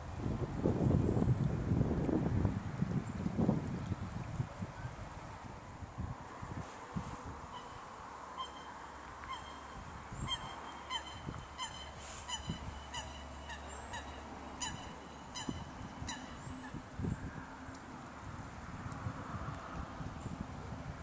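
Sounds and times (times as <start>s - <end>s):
geese honking: 10.3s - 16.7s.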